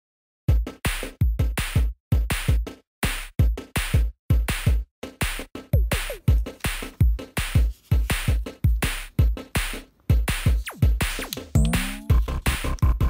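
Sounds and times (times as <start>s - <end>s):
electronic music with drum machine: 3.4s - 13.0s.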